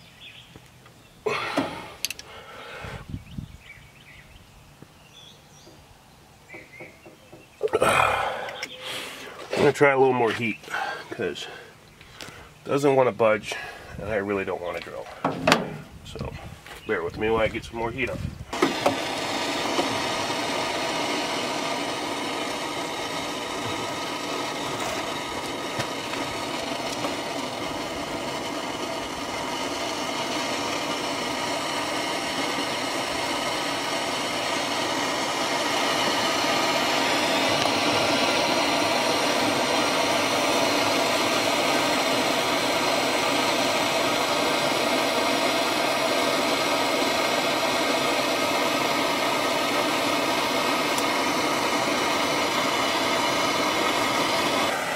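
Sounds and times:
propane torch flame hissing: 1.2 - 4.0, 6.5 - 54.9.

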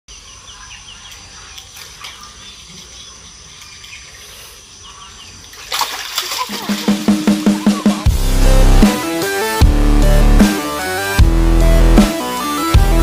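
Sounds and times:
insects droning: 0.1 - 8.1.

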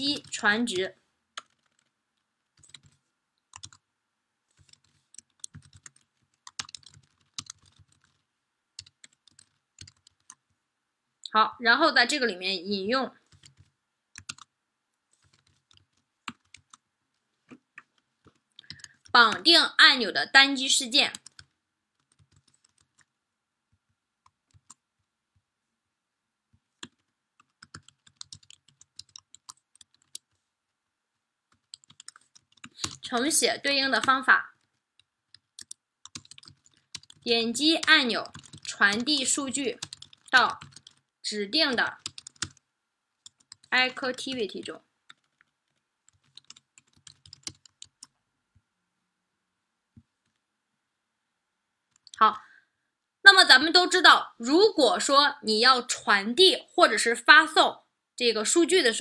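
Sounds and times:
keyboard typing: 0.0 - 0.8, 1.4 - 3.9, 4.5 - 10.5, 13.2 - 14.5, 15.1 - 16.8, 17.5 - 19.5, 21.1 - 23.1, 24.2 - 24.8, 26.8 - 30.4, 31.5 - 42.6, 43.2 - 48.2, 51.9 - 52.2.

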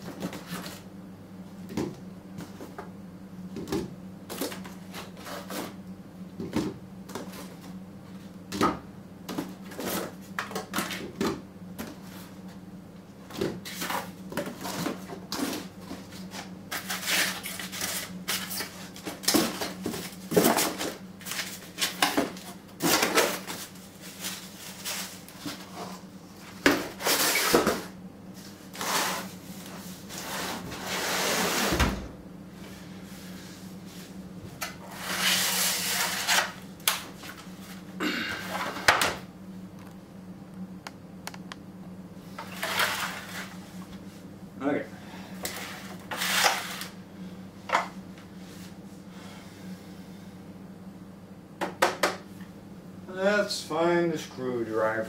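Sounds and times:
steady low hum: 0.0 - 55.0
cardboard rustling and scraping: 42.4 - 43.9, 45.5 - 47.0.

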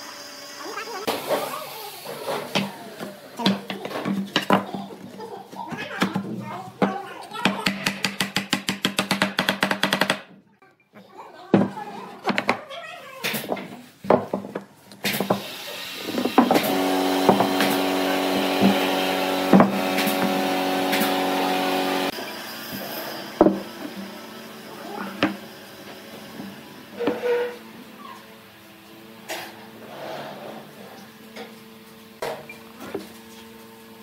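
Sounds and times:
wooden boards knocking together: 13.4 - 15.4.

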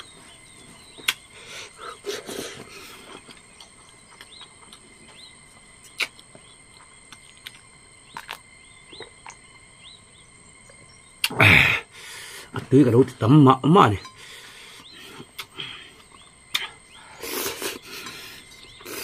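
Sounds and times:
mouth clicks and smacks: 1.0 - 1.3, 5.8 - 9.4, 11.2 - 11.4, 15.3 - 15.6, 16.5 - 17.8.

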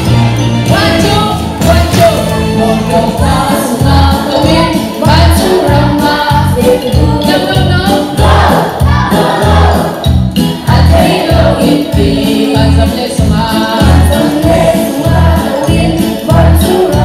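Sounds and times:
upbeat backing-track music: 0.0 - 17.0
woman singing into a microphone: 0.7 - 8.4, 11.6 - 17.0.

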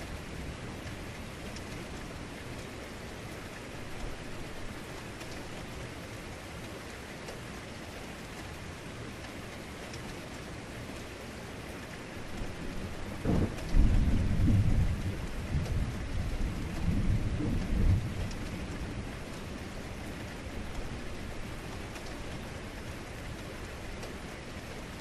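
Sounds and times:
heavy rain falling: 0.0 - 25.0
thunder crack and rumble: 12.4 - 19.6.

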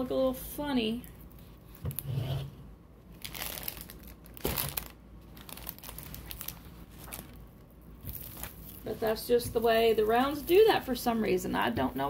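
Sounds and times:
plastic crinkling and rustling: 3.1 - 11.0.

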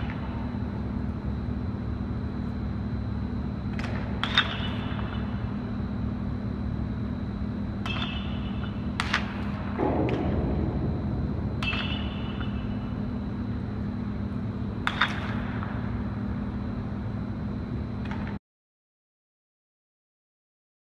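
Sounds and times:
bat cracking against ball: 3.7 - 5.2, 7.8 - 10.4, 11.6 - 13.0, 14.8 - 15.8
low hum: 5.3 - 18.1.

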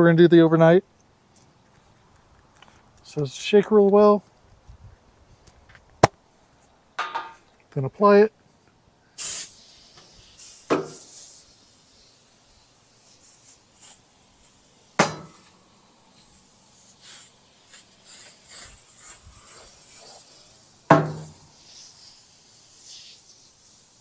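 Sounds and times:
aerosol spray hissing: 9.2 - 24.0
sharp knocks: 20.9 - 21.4.

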